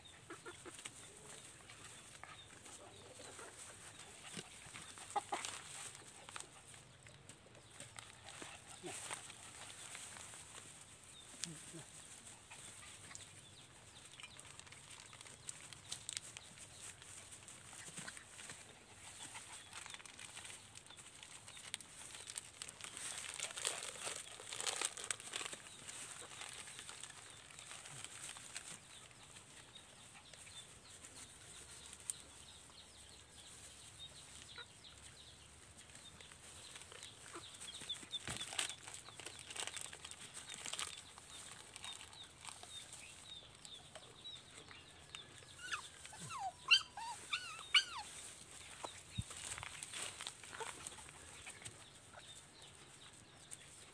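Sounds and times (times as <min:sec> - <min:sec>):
hen clucking: 0:00.0 - 0:06.0
puppies scuffling in leaves: 0:00.2 - 0:07.0, 0:07.6 - 0:53.9.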